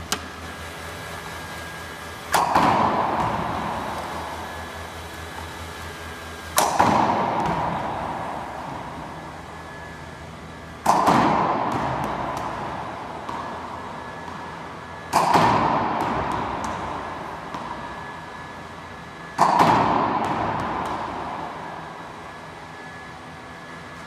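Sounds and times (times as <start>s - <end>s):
ball machine loud bangs: 2.3s - 5.4s, 6.5s - 10.0s, 10.7s - 23.0s.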